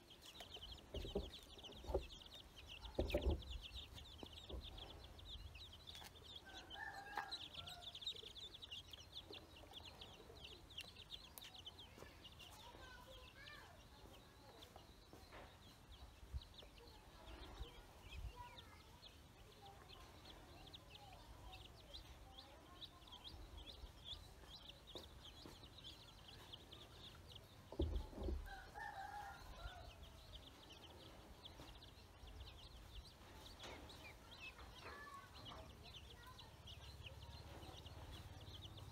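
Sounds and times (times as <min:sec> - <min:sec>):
chicken calls: 0:00.0 - 0:13.2, 0:22.6 - 0:38.9
ducklings peeping: 0:00.0 - 0:38.9.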